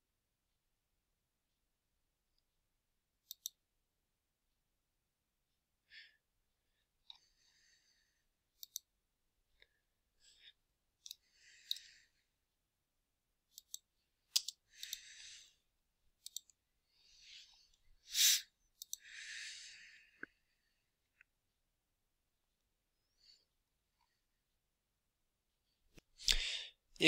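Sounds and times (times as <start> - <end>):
computer mouse clicking: 3.2 - 3.6, 8.6 - 8.9, 11.0 - 11.9, 13.5 - 15.1, 16.2 - 16.6, 18.8 - 19.0.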